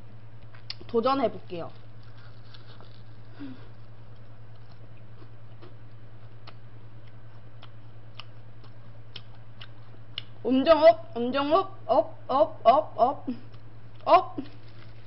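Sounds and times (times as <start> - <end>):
steady low hum: 0.0 - 15.0
person chewing crispy food: 1.7 - 10.4, 13.5 - 15.0.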